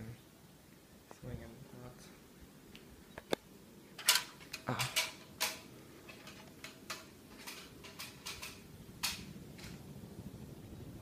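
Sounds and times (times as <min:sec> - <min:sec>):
ceiling fan whoosh and motor hum: 0:00.0 - 0:11.0
light clicks and clinks: 0:04.0 - 0:09.8.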